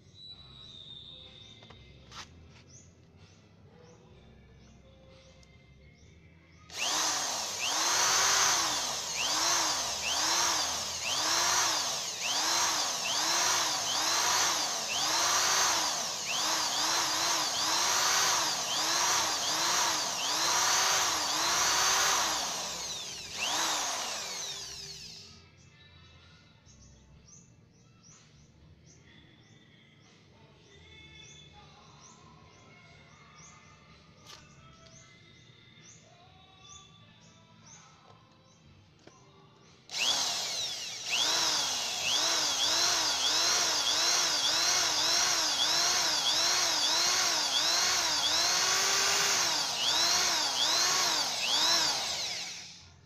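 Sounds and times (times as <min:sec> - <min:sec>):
electric drill motor whining: 0:06.7 - 0:25.4, 0:39.9 - 0:53.0.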